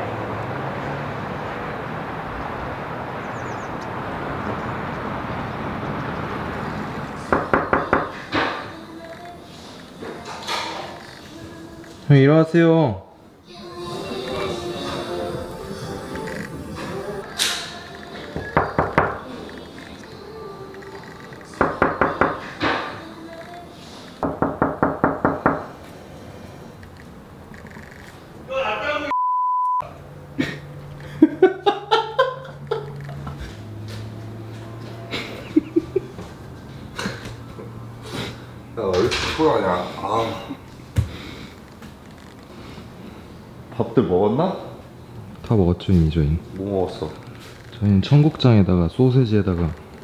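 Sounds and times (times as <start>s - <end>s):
knocking on a door: 7.3s - 8.1s, 24.2s - 25.6s.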